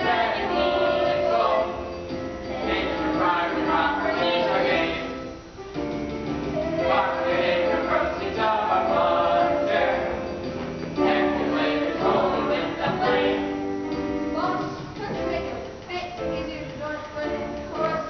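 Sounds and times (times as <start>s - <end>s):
choir singing sustained notes: 0.0s - 5.3s, 6.6s - 13.7s.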